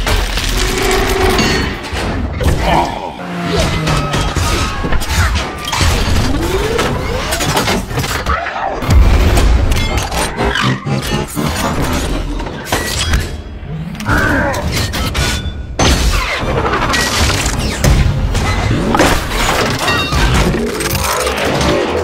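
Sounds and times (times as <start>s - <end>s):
mechanical transformation effects: 2.4s - 15.4s, 18.4s - 22.0s.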